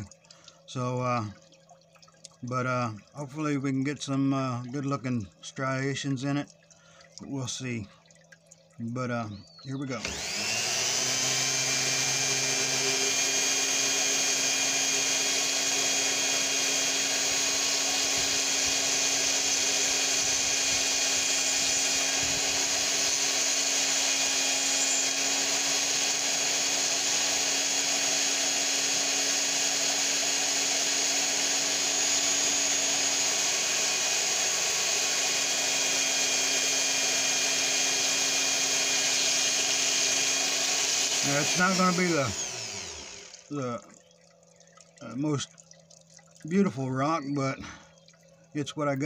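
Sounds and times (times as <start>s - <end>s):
rotary tool grinding stone: 9.9s - 43.6s.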